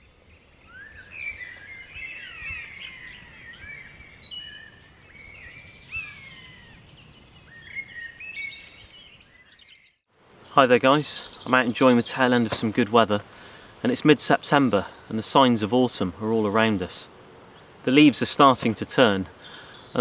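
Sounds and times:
songbirds singing: 0.0 - 20.0.

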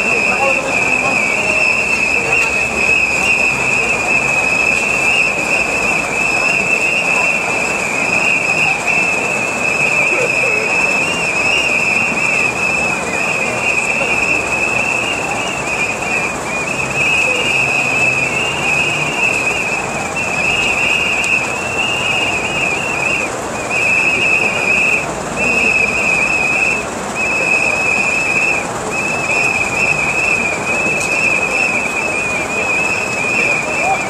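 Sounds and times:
crowd hubbub: 0.0 - 34.0
pea whistles trilling: 0.0 - 34.0.

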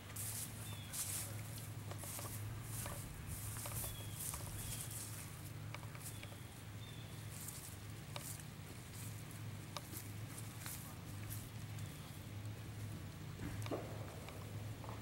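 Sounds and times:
low steady hum: 0.0 - 15.0
soft rustling: 0.1 - 6.4, 7.2 - 12.1.

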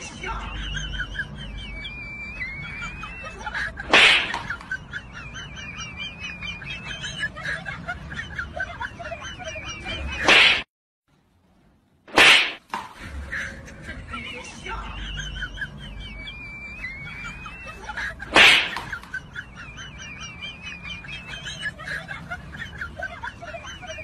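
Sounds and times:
birds chirping: 13.4 - 24.0.

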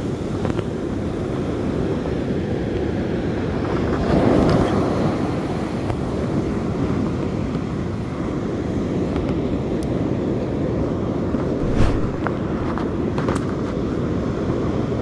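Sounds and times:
wind buffeting microphone: 11.5 - 12.8.

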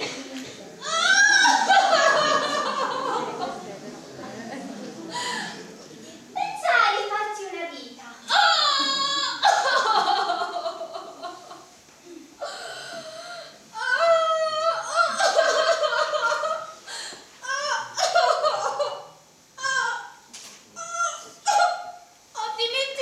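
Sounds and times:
woman crying and wailing: 0.8 - 3.0, 8.3 - 11.5, 12.4 - 16.7.

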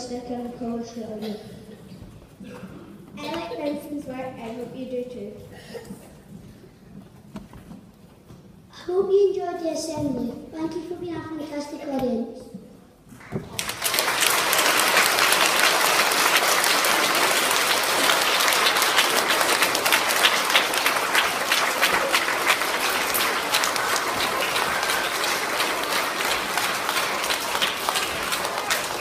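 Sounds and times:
audience applauding: 13.2 - 29.0.

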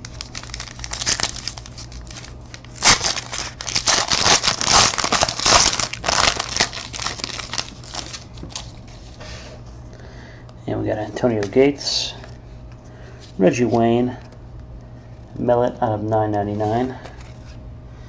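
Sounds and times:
wrapper crinkling and tearing: 0.0 - 8.7.

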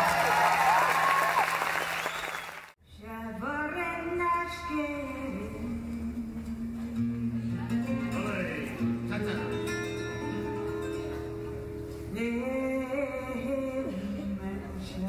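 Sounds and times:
acoustic guitar: 3.5 - 15.0.

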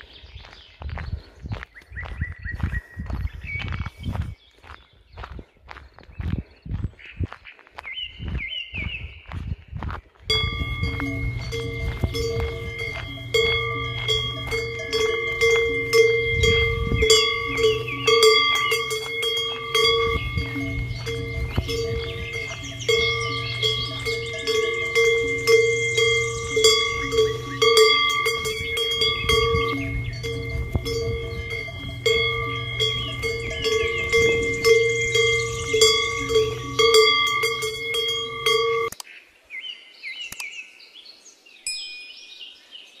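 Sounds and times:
birds chirping: 0.0 - 43.0
cowbells clanging: 10.3 - 39.0.

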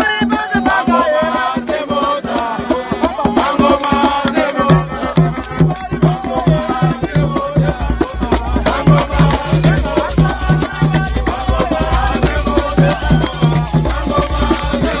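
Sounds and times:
fans singing a chant: 0.0 - 15.0
hand drums beaten with palms: 0.0 - 15.0
low pulsing beat: 4.0 - 15.0.

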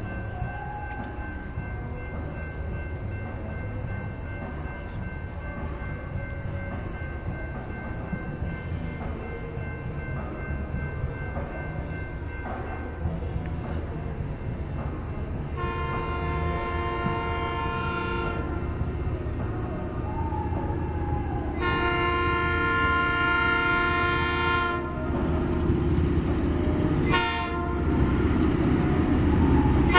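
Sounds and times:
diesel freight train rumbling: 0.0 - 29.9
locomotive air horn blast: 15.6 - 18.7, 21.5 - 25.0, 27.0 - 28.0.

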